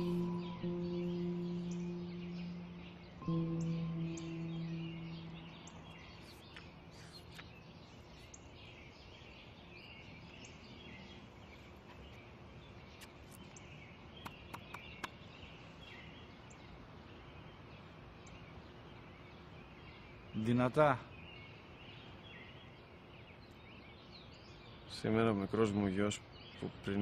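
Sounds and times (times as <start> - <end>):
small birds chirping: 0.0 - 27.0
steady low hiss: 0.0 - 27.0
faint sharp clicks: 13.0 - 15.2.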